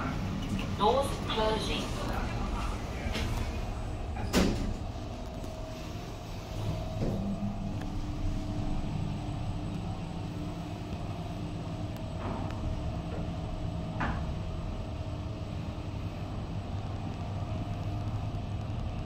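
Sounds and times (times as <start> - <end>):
elevator ride rumble: 0.0 - 19.0
faint steady hum: 0.0 - 19.0.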